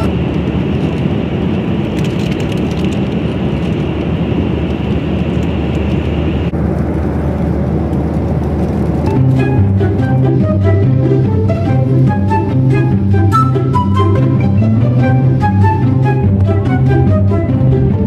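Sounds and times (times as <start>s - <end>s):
jet airliner cabin noise: 0.0s - 18.0s.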